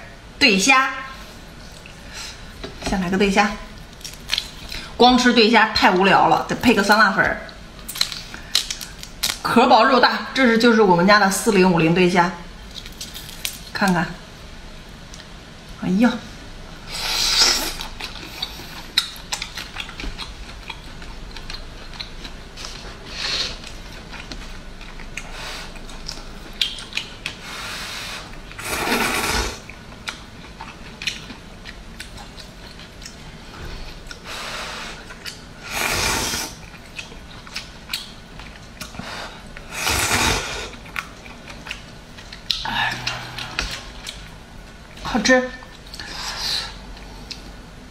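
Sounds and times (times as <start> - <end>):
chewing with wet mouth clicks: 3.8 - 4.8, 7.4 - 9.4, 17.8 - 22.8, 23.5 - 27.4, 29.7 - 33.2, 33.8 - 34.3, 35.0 - 35.5, 36.6 - 39.7, 40.7 - 45.0
slurping noodles: 28.6 - 29.6, 35.6 - 36.6, 39.7 - 40.7.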